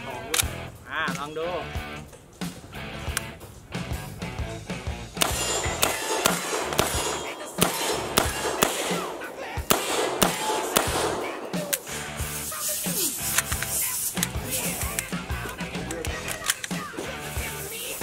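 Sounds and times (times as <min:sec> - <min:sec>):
submachine gun single shots: 0:05.2 - 0:12.6.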